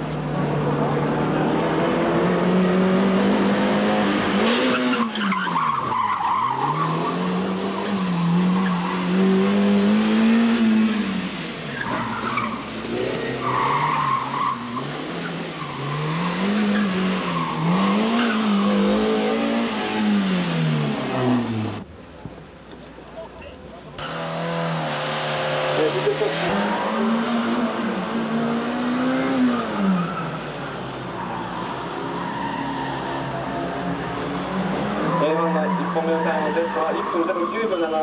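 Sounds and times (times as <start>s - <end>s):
car engine revving hard: 0.4s - 5.2s, 6.4s - 21.8s, 24.0s - 31.1s.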